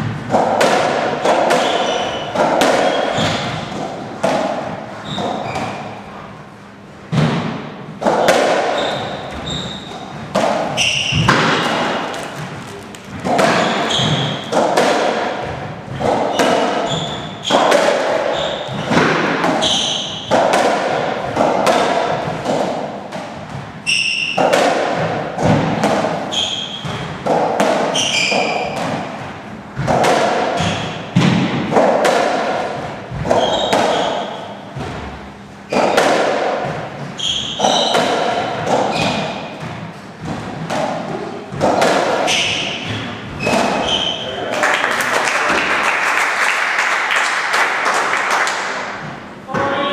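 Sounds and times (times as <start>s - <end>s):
ball hitting racket and walls: 0.0s - 44.2s, 48.4s - 49.8s
shoes squeaking on wooden floor: 5.0s - 6.0s, 8.7s - 14.6s, 15.9s - 19.0s, 19.6s - 20.3s, 27.9s - 28.8s, 33.2s - 34.5s, 37.1s - 39.4s.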